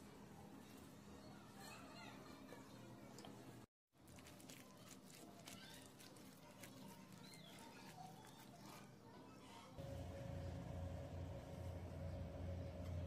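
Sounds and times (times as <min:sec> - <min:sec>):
hand mixing wet batter: 0:04.0 - 0:09.3.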